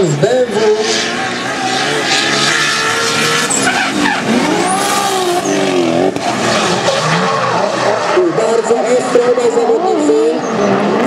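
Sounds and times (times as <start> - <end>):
tyres screeching: 0.0 - 8.8
car engines revving: 0.0 - 11.0.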